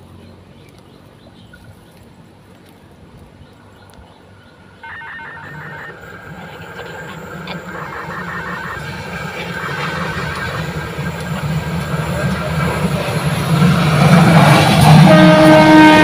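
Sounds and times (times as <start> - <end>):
diesel locomotive engine rumble: 0.0 - 16.0
rapid pulsing high tone: 4.8 - 14.4.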